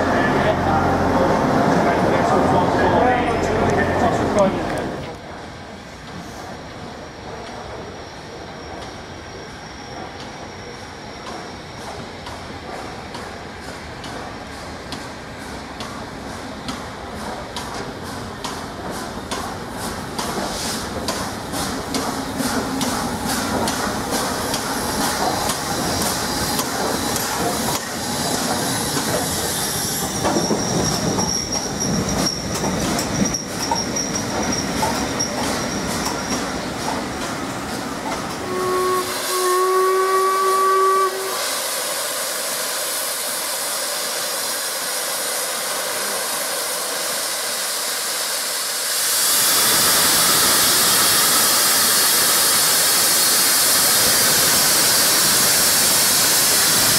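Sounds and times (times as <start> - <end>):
train wheel clatter: 6.0 - 41.3
steam hissing: 17.7 - 56.9
high brake squeal: 28.7 - 32.6
steam whistle blasts: 38.4 - 41.8.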